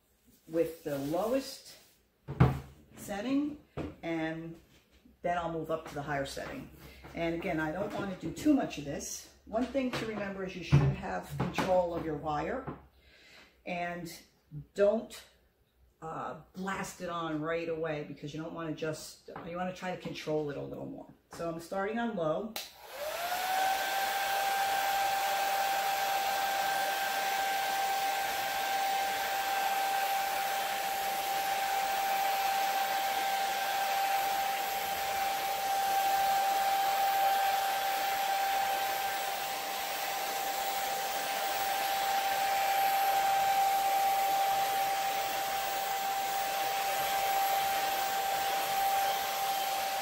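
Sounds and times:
hair dryer running: 22.6 - 50.0.

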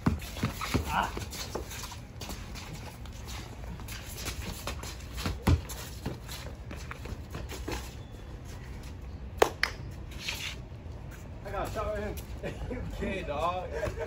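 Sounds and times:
basketball bouncing on concrete: 0.0 - 2.4, 4.6 - 7.4
sneaker scuffs and steps: 0.0 - 14.0
sharp slaps: 9.4 - 9.9.

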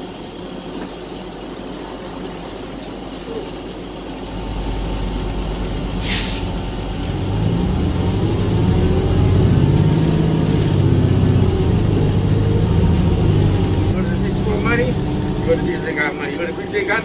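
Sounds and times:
bus engine pulling away: 4.2 - 17.0
air brake hiss: 6.0 - 6.6.

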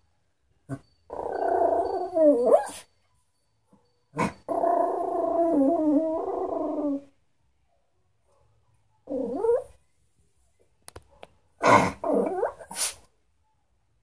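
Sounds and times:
dog whining and yowling: 0.7 - 3.0, 4.1 - 7.1, 9.0 - 9.8, 11.6 - 13.0.

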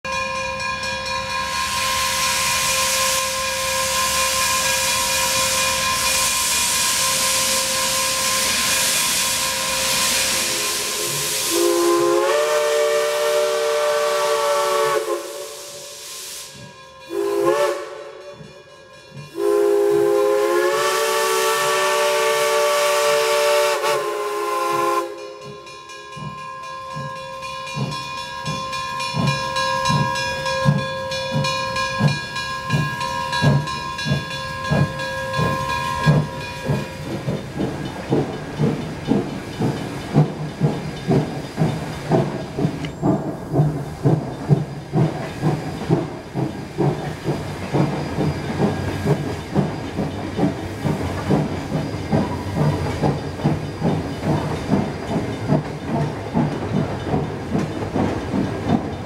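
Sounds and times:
steam hissing: 1.4 - 59.0
steam whistle blasts: 1.5 - 18.5, 19.4 - 25.4
locomotive exhaust chuffs: 27.0 - 59.0.

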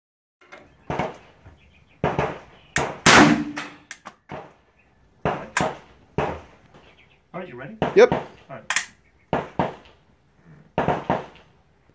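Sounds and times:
suppressed rifle shots: 2.1 - 3.8
faint gun cracks: 8.7 - 9.0.

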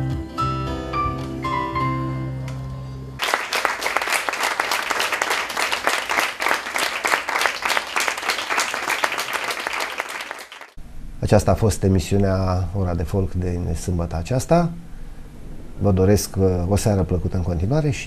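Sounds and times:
audience applause: 3.2 - 10.8.

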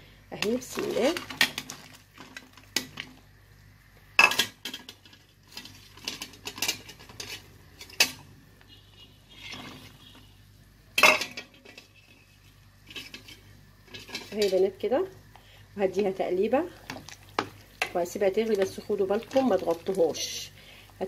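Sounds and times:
metal spoon stirring in pot: 4.3 - 8.2, 9.3 - 10.3, 11.0 - 14.9, 15.9 - 20.5.

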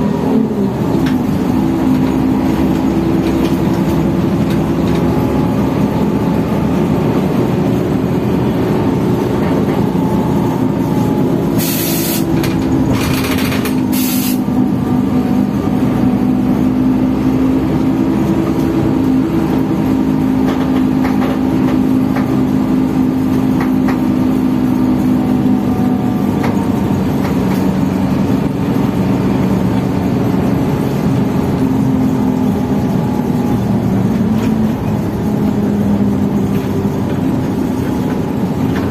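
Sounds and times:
bus engine rumbling: 0.0 - 38.9
compressed air hiss: 11.6 - 12.3, 13.9 - 14.4.

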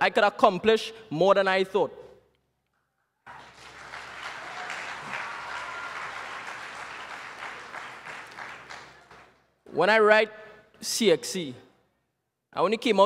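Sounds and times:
audience applauding: 3.3 - 9.4.

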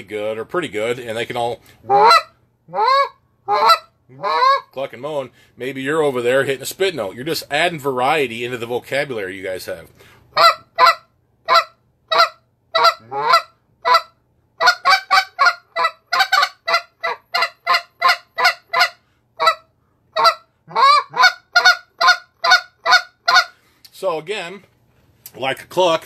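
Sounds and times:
goose call notes: 10.4 - 19.6, 20.2 - 23.6.

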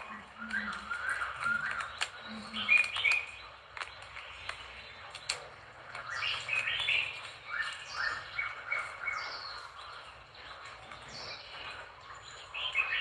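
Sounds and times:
sharp clicks: 0.0 - 8.0
small birds chirping: 0.0 - 13.0.

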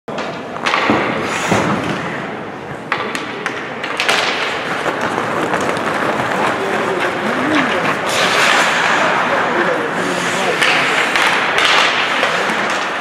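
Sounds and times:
hockey sticks clicking on ice: 0.1 - 13.0
rink background noise: 0.1 - 13.0.

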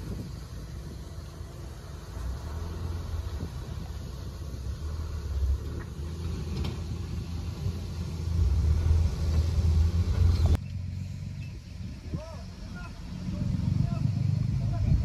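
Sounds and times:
diesel truck engine rumbling: 0.0 - 15.0
dirt unloading from truck bed: 4.7 - 11.6.

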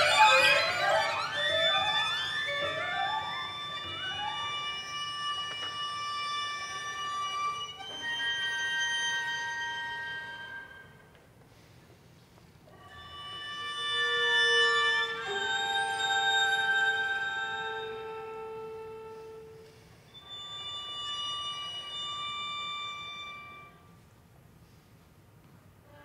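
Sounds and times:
string quartet playing: 0.0 - 10.8, 12.9 - 20.8.

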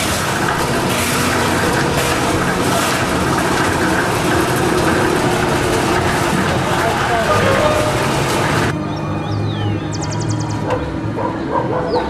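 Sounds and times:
concrete mixer engine running: 0.0 - 8.8.

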